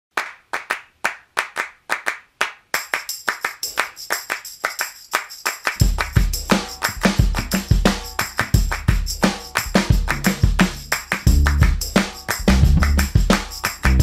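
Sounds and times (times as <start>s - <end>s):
rhythmic handclaps: 0.1s - 14.0s
deep bass beat: 5.8s - 14.0s.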